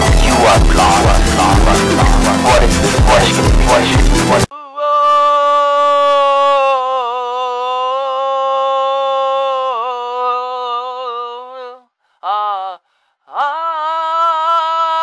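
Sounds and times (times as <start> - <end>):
person singing a long note: 0.0 - 15.0.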